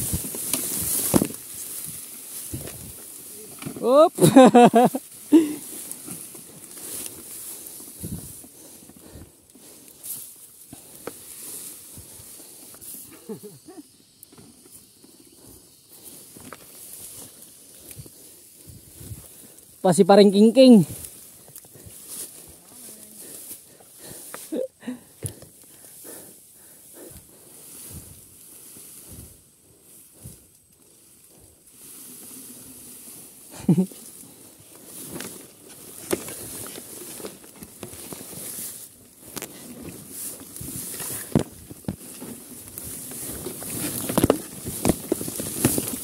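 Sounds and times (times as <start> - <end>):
tall grass rustling: 0.0 - 46.0
heavy breathing: 6.7 - 11.1, 21.4 - 28.3.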